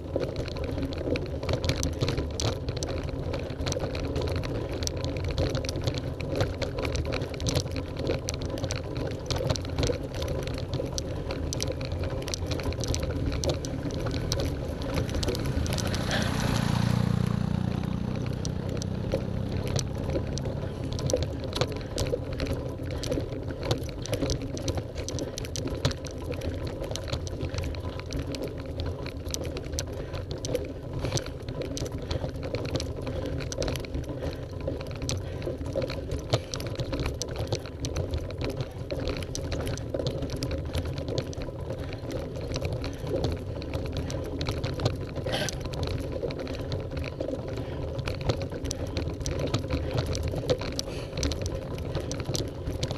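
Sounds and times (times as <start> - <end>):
bicycle tyres drumming on cobblestones: 0.0 - 52.9
bike rattling: 0.0 - 52.9.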